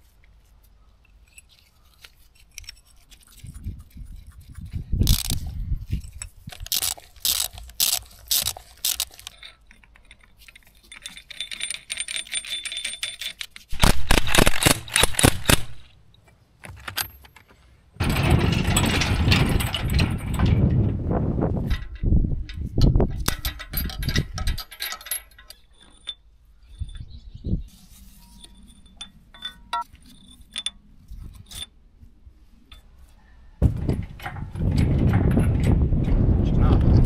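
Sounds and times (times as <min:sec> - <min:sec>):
metal tools clinking and clanking: 0:01.2 - 0:03.0, 0:05.1 - 0:13.7, 0:16.7 - 0:20.8, 0:21.6 - 0:27.3, 0:27.9 - 0:31.8, 0:33.6 - 0:35.8
loud mechanical rattling: 0:05.1 - 0:05.4, 0:06.6 - 0:09.4, 0:18.0 - 0:20.9.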